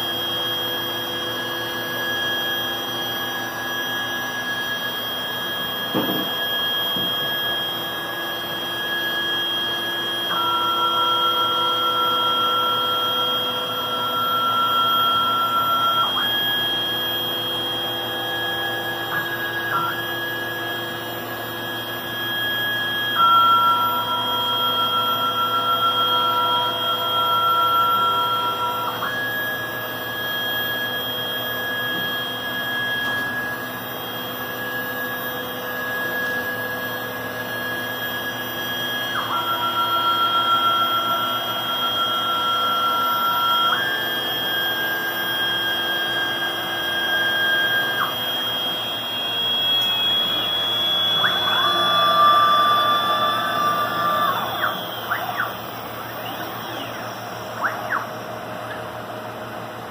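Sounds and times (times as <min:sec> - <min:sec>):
high machine whine: 0:00.0 - 0:59.9
vacuum pump and dust collector drone: 0:00.0 - 0:59.9.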